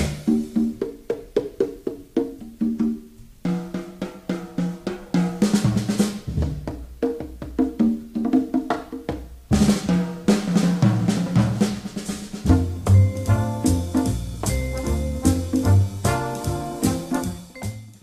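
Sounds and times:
wood-block and drum hits: 0.0s - 18.0s
bouncy tune of pitched notes: 12.4s - 18.0s.

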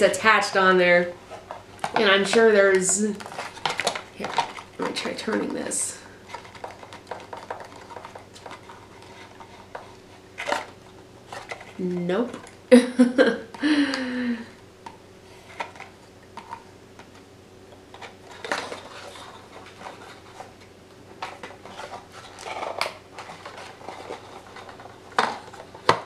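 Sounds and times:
packaging rustling: 3.1s - 5.6s, 6.2s - 11.8s, 17.9s - 26.0s.

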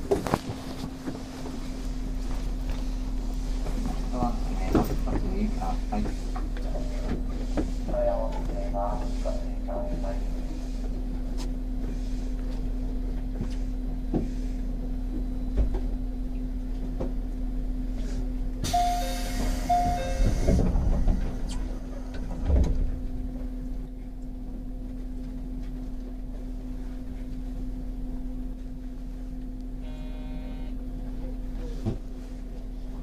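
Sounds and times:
electric train humming: 0.0s - 12.4s, 17.6s - 24.8s
sliding doors closing with a thud: 18.6s - 23.1s
two-note tone: 18.7s - 20.6s.

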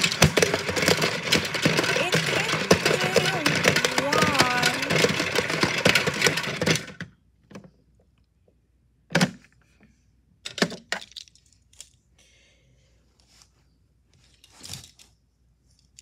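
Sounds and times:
toy truck clattering in drum: 0.0s - 7.1s
plastic knocks and clicks: 0.0s - 7.7s.

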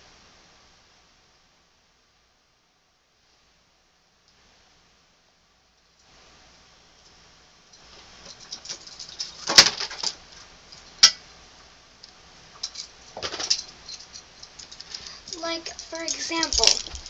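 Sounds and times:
objects rustling and clicking: 7.8s - 11.1s, 12.6s - 17.0s.

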